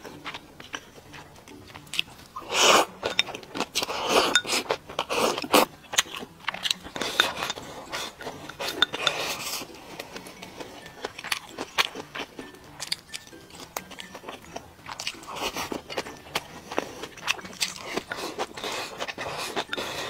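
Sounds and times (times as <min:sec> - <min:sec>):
eating slurps and mouthfuls: 0:00.0 - 0:20.0
chopsticks clinking on bowl: 0:00.1 - 0:20.0
chewing clicks: 0:00.2 - 0:02.2, 0:03.0 - 0:09.2.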